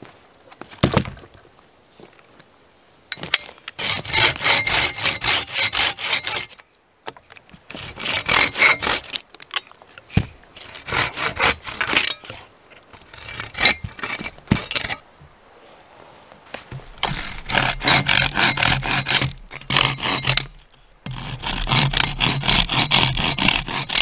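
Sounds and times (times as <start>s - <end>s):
hand saw cutting wood: 3.7s - 6.6s, 7.7s - 9.2s, 10.6s - 15.0s, 16.7s - 24.0s.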